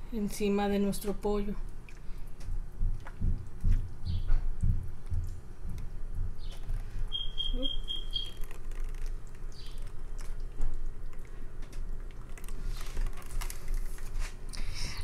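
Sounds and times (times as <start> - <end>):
high peeps: 7.1 - 8.6
marinade pouring wet patter: 7.8 - 14.5.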